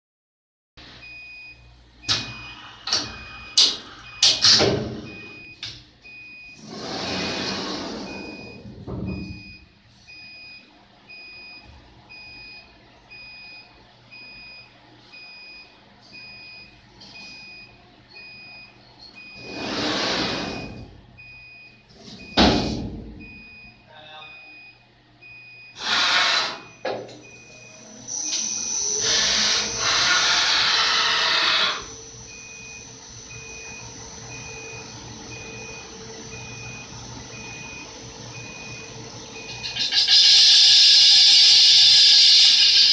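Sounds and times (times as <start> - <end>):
machine beeping: 1.0 - 42.9
wheel spinning up with rising whine: 27.8 - 39.5.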